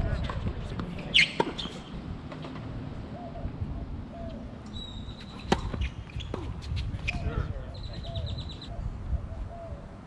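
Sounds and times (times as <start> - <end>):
tennis balls struck by rackets: 0.2 - 2.8, 5.1 - 7.2.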